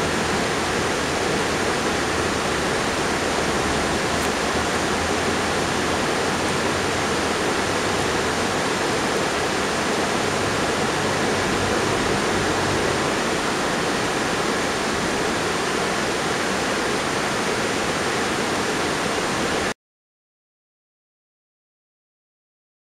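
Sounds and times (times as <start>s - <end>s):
river water rushing over rocks: 0.0s - 19.7s.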